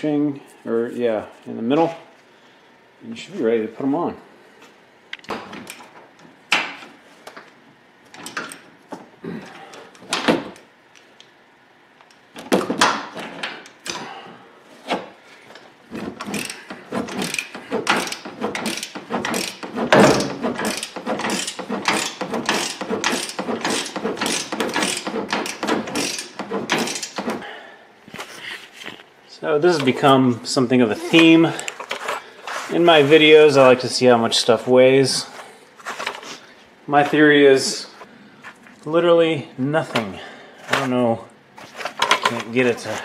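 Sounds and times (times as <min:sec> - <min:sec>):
ratchet clicking: 0:16.2 - 0:27.2.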